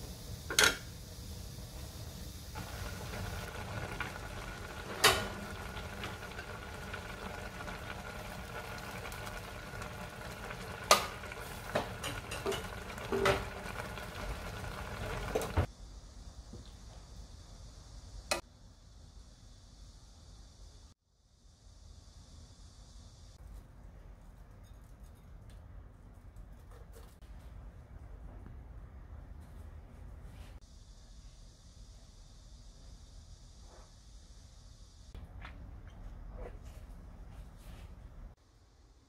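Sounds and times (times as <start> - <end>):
food simmering and bubbling: 1.8 - 15.7.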